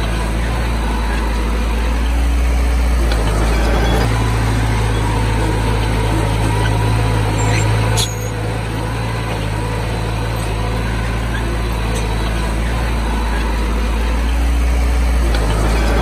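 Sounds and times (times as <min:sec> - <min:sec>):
bulldozer engine droning: 0:00.0 - 0:16.0.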